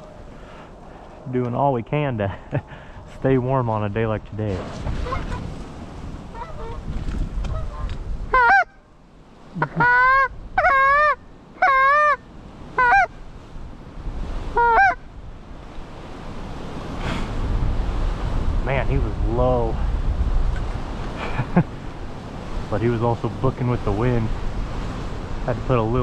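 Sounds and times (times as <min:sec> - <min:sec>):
wind rumble: 0:00.0 - 0:11.6, 0:12.2 - 0:26.0
goose honks: 0:05.0 - 0:05.5, 0:06.3 - 0:06.8, 0:07.5 - 0:08.8, 0:09.6 - 0:12.2, 0:12.8 - 0:13.1, 0:14.5 - 0:15.0.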